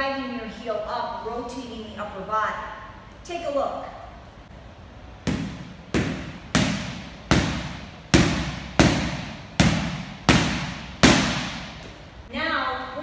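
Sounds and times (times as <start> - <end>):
boxing gloves smacking focus mitts: 5.3 - 12.0.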